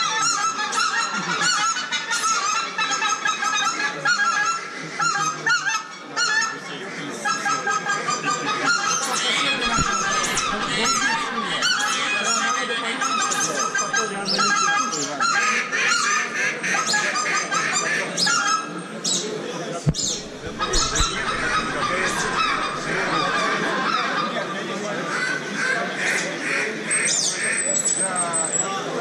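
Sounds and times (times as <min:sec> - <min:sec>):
geese honking: 0:09.2 - 0:12.2, 0:19.9 - 0:23.6.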